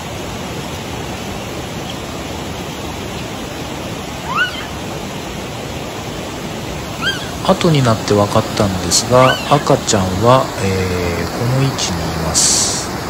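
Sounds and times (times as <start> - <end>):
river rushing over rocks: 0.0 - 13.0
short high rising falling call: 4.2 - 4.8, 7.0 - 7.5, 8.9 - 9.8.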